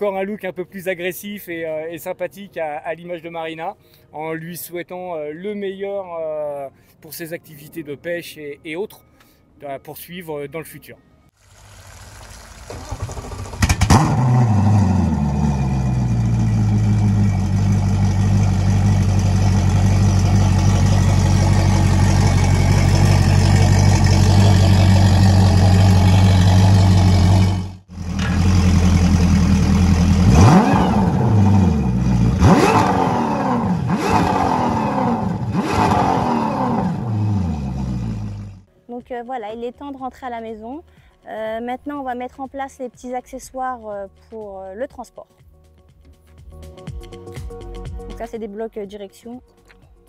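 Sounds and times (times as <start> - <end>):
outboard motor starting and idling: 11.4 - 33.7, 36.7 - 38.7.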